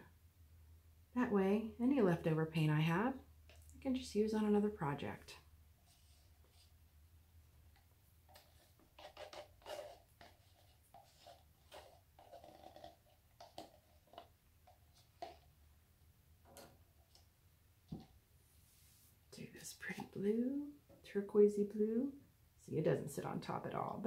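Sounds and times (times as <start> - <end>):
plastic cups tapping and rustling: 7.7 - 15.6.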